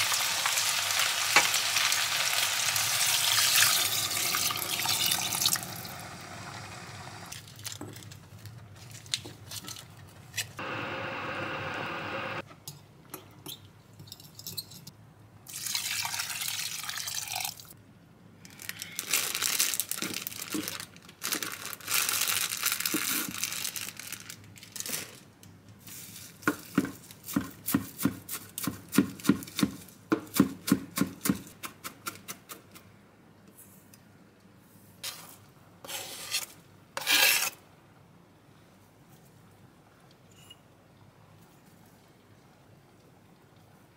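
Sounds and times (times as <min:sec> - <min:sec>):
rustling of herbs in a bag: 0:18.6 - 0:25.2.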